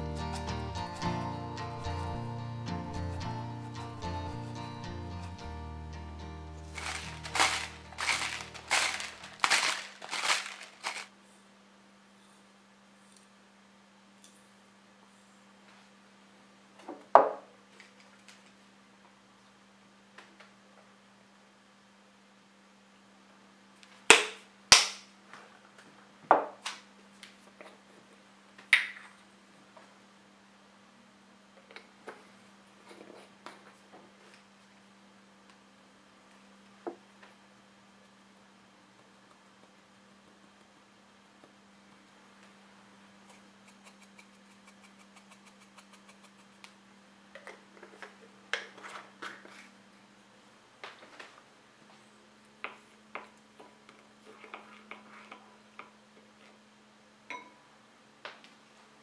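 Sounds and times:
light rapid tapping on container: 6.8s - 11.1s.

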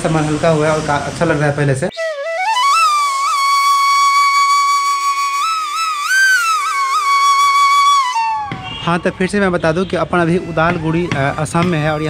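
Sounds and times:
solo flute: 1.9s - 9.3s.

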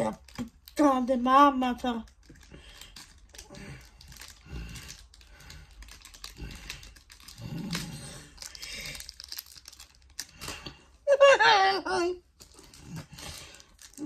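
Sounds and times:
paper packets crinkling: 1.8s - 10.8s, 12.4s - 14.0s.

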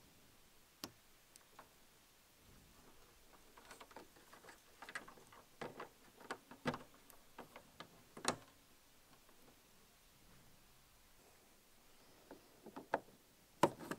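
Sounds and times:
plastic clicks and rattles: 3.3s - 9.4s.

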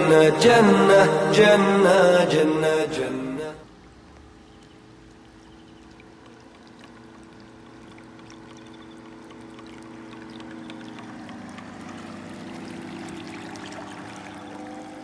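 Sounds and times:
model boat electric motor humming: 3.6s - 15.0s
water splashing and trickling: 3.6s - 15.0s.

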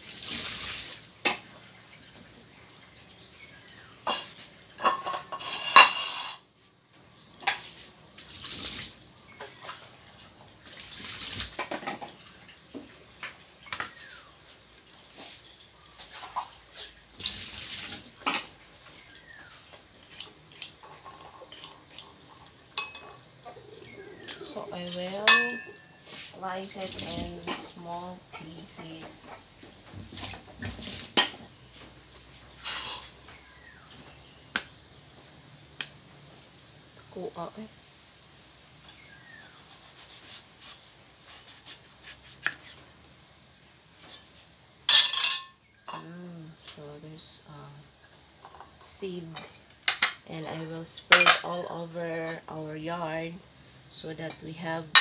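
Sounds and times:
knife clattering on counter: 24.9s - 25.9s, 44.9s - 45.6s.

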